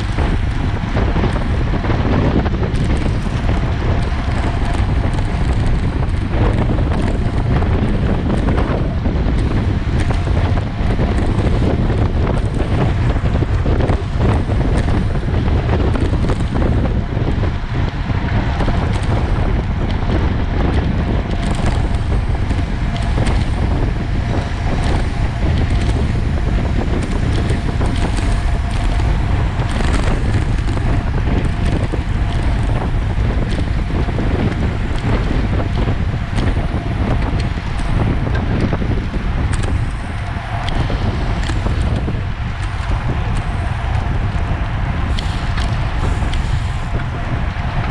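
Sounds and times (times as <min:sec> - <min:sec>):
heavy wind buffeting microphone: 0:00.0 - 0:47.9.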